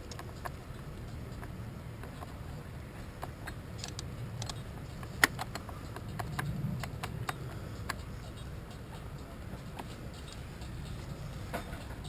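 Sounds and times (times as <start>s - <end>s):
low rumble: 3.6s - 12.0s.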